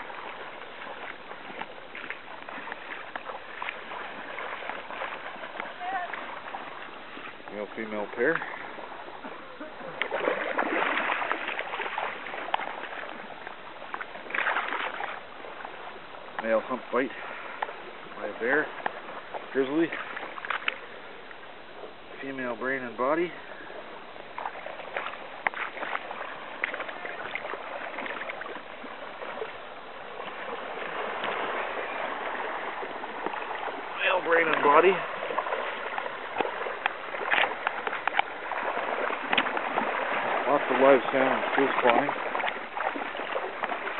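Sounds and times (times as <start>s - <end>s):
stream water splashing: 0.0s - 43.9s
faint clicks: 20.4s - 20.8s, 36.0s - 38.3s.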